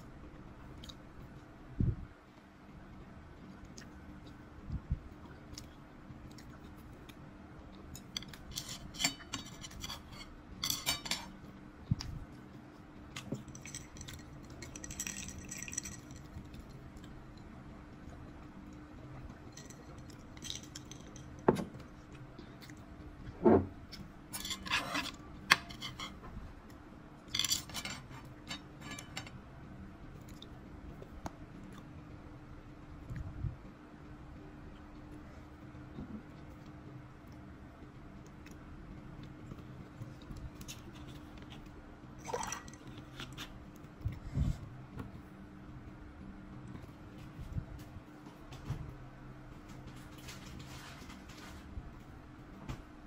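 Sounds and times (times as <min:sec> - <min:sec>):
faint steady hum: 0:00.0 - 0:53.0
chopsticks scraping a frying pan: 0:08.2 - 0:11.3, 0:24.3 - 0:26.2.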